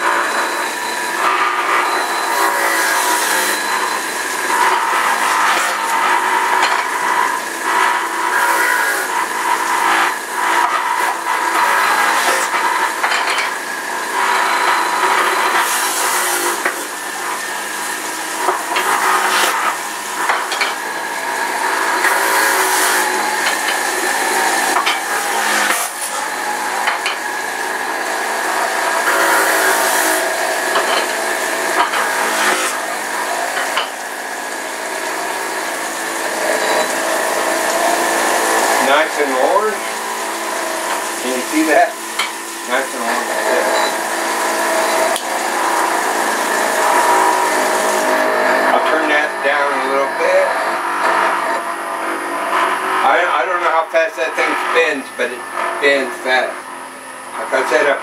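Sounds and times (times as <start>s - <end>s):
tap water running into metal sink: 29.7s - 48.2s.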